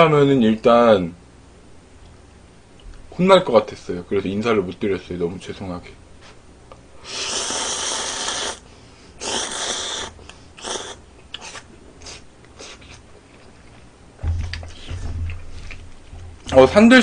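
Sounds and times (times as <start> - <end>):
noodles being slurped: 7.1 - 8.6, 9.2 - 13.5.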